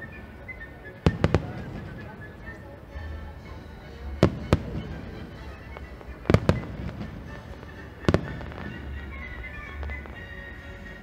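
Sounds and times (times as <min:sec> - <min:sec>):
fireworks shells bursting: 0:04.2 - 0:10.2.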